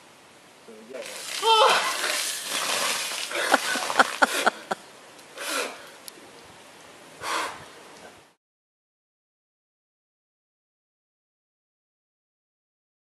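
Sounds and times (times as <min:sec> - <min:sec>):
water pouring and splashing: 0:00.9 - 0:04.8
man breathing heavily: 0:05.4 - 0:06.0, 0:07.2 - 0:07.7.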